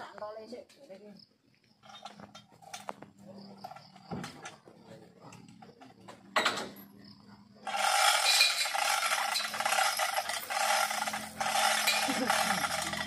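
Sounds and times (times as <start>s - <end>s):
abrasive tool grinding: 7.6s - 13.0s.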